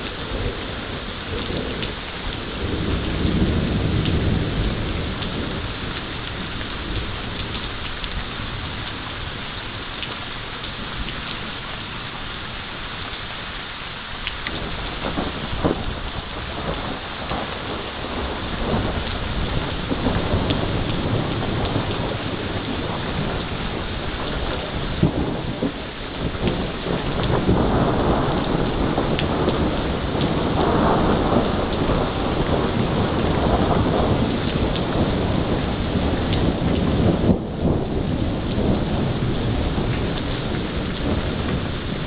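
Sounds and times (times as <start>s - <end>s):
thunder rumbling: 0.0s - 12.1s, 14.3s - 42.0s
heavy rain pouring: 0.0s - 42.0s.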